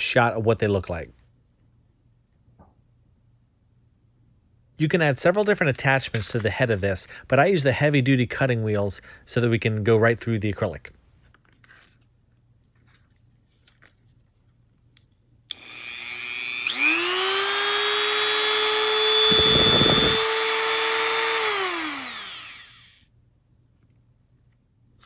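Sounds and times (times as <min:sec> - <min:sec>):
rotary tool whine: 0:15.5 - 0:23.0.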